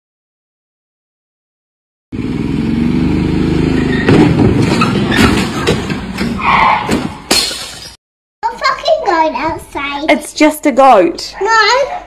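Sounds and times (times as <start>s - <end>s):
golf cart engine running rough: 2.2s - 5.7s.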